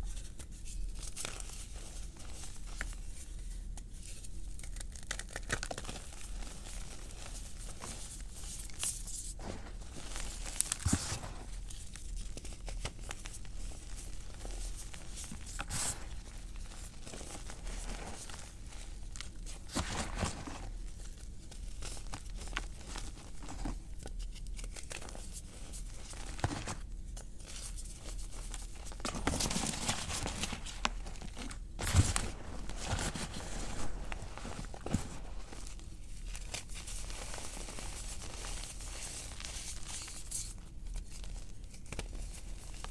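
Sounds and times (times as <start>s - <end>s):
soft powdery rubbing: 5.8s - 23.7s, 31.9s - 40.0s.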